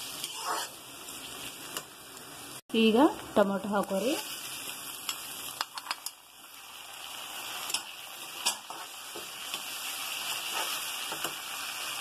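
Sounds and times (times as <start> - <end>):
vegetables sizzling in hot oil: 0.0 - 12.0
steel spoon scraping pan: 0.2 - 0.8.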